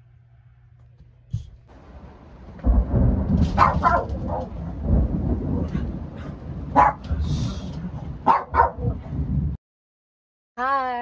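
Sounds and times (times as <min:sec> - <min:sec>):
thunder rumbling: 0:01.7 - 0:09.6
dog barking: 0:03.5 - 0:04.6, 0:06.7 - 0:07.1, 0:08.2 - 0:09.0.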